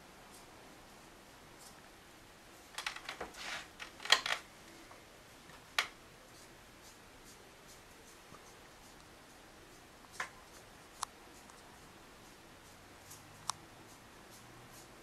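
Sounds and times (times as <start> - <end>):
rustles and clicks: 2.7 - 4.5.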